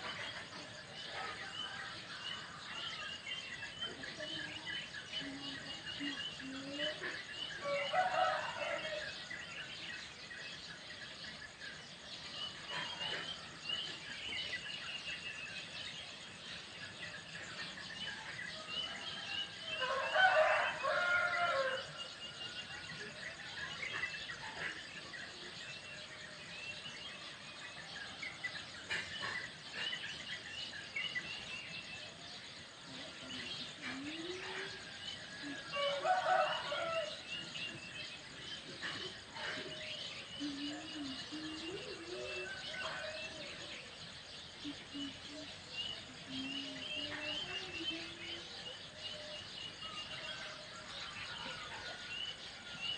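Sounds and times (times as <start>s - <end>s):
rooster crowing: 7.6s - 9.2s, 19.8s - 22.0s, 35.7s - 37.2s
small birds chirping: 23.8s - 52.9s.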